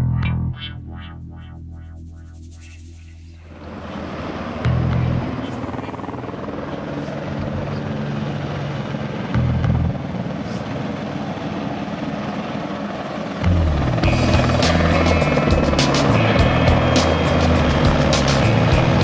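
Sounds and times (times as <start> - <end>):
helicopter rotor and turbine: 2.0 - 19.0
background music: 13.4 - 19.0.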